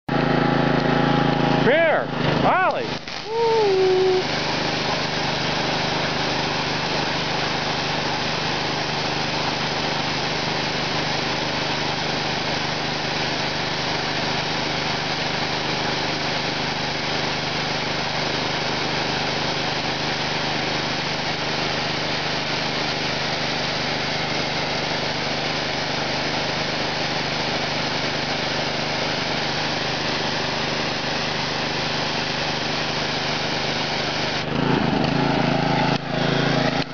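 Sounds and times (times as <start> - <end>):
pressure washer engine drone: 0.1 - 36.9
high-pressure water spray hissing: 2.3 - 36.9.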